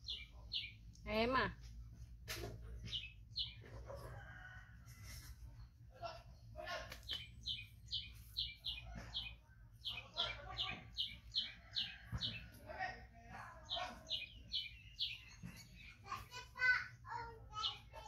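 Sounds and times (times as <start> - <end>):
bird chirping rapidly: 7.1 - 12.5.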